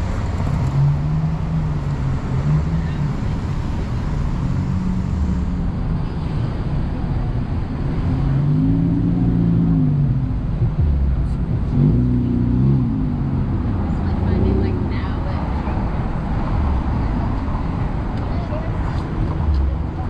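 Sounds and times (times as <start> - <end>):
cars driving past: 0.0 - 20.0
vehicle engine revving: 7.8 - 20.0.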